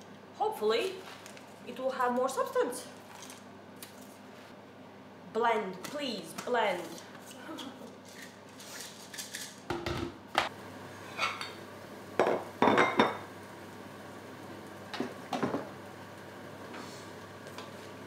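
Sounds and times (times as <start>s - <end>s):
kitchen utensils and dishes clinking: 11.0s - 11.6s.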